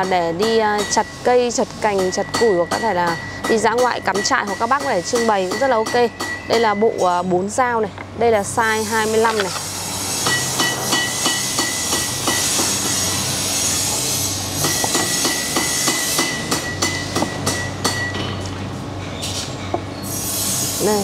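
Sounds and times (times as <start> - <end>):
steady machine hum: 0.0 - 21.0
hammering on metal: 14.6 - 18.2.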